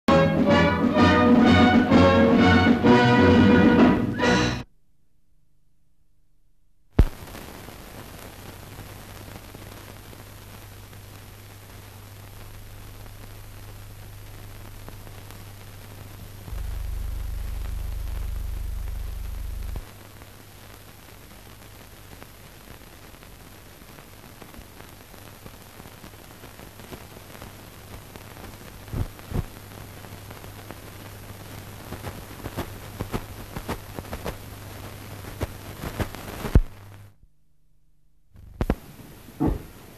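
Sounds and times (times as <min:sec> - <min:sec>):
crackles and pops: 0:06.9 - 0:39.9
steady hiss and low hum: 0:07.0 - 0:39.9
deep hum: 0:12.2 - 0:19.9.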